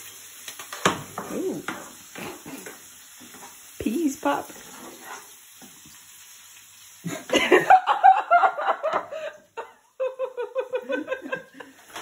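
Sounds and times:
frying pan sizzling: 0.0 - 12.0
hearty laughter: 7.1 - 11.9.

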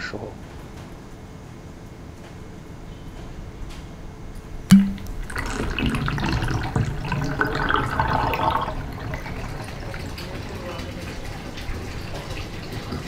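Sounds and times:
water running down plughole: 4.7 - 13.0.

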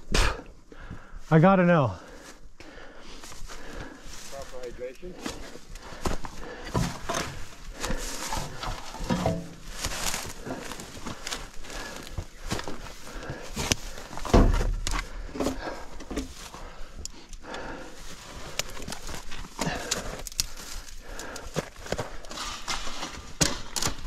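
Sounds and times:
footsteps on gravel: 3.4 - 14.8.

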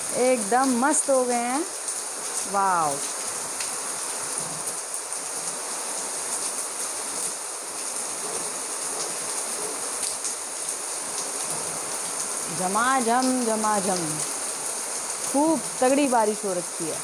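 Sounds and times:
heavy rain pouring: 0.0 - 17.0
water drips: 9.0 - 17.0.

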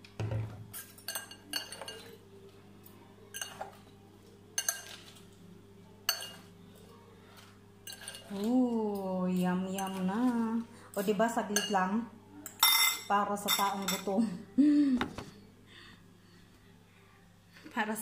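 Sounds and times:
forks clinking on glass bowl: 0.7 - 2.2, 3.3 - 4.0, 4.6 - 5.3, 6.1 - 6.5, 7.4 - 10.4, 11.0 - 14.2.

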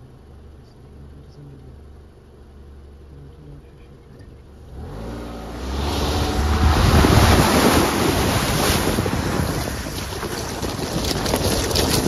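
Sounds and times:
gravel crackling under tires: 1.8 - 12.0
car engine accelerating: 3.4 - 10.5
water splashing against car: 5.8 - 12.0.

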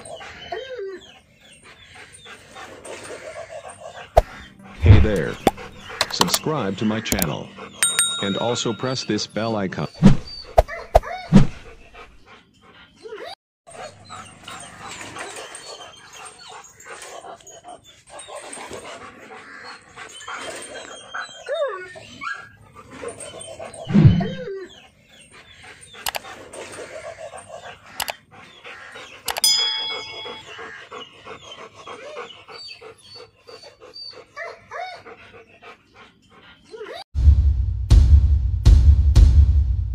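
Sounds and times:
dog panting: 0.0 - 9.1, 11.2 - 37.0
sharp metallic clang: 7.8 - 9.1.

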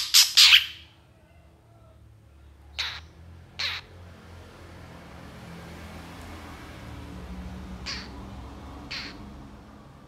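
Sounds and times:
bird harsh rasping calls: 0.0 - 0.9, 2.8 - 3.9, 7.8 - 8.2, 8.8 - 9.3.

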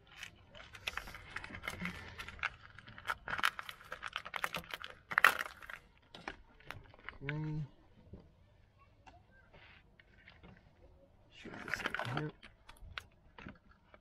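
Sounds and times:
plastic conduit crackling and clicking: 0.0 - 8.2.

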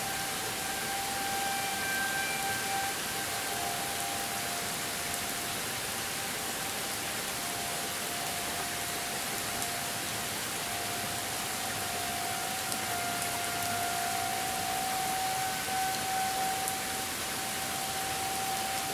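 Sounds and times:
distant tornado siren tone: 0.0 - 18.9
rain hiss: 0.0 - 18.9.

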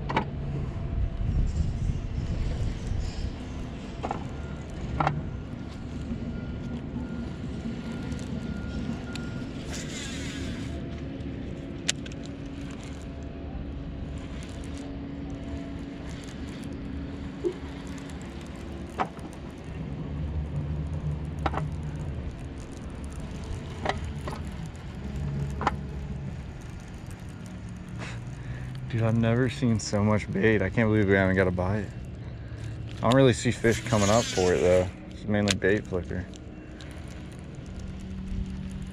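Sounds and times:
low mechanical hum: 0.0 - 38.9.

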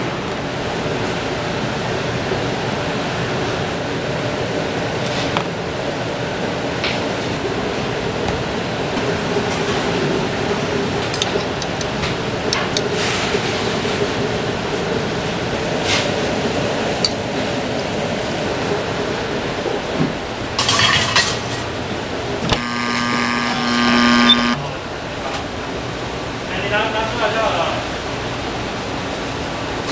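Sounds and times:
kitchen hum: 20.7 - 24.9
oven humming tone: 22.2 - 24.8.

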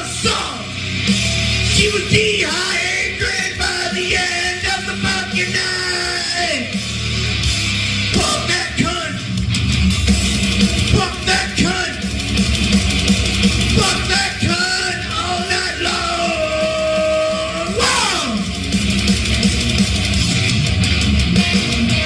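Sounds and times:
heavy metal song: 0.0 - 22.0
yelled vocal note: 8.1 - 9.4, 13.7 - 18.7.

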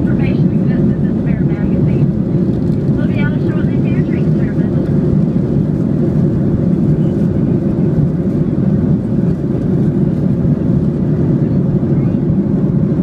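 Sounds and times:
airliner cabin engine rush: 0.0 - 13.0.

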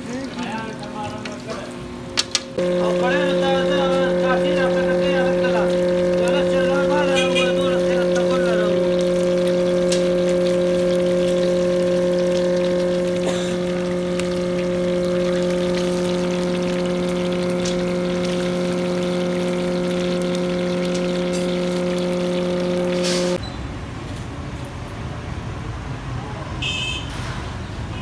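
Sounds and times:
loud steady machine hum: 1.8 - 23.4
fish sizzling in hot oil: 2.6 - 23.4.

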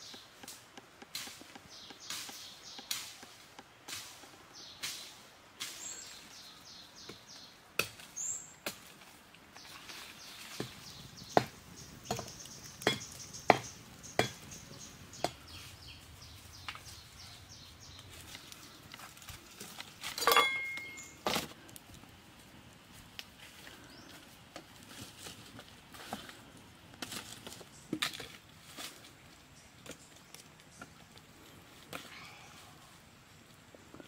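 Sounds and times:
campfire crackling and popping: 10.6 - 20.3, 21.0 - 24.9
high repeated chirping: 20.6 - 21.2.

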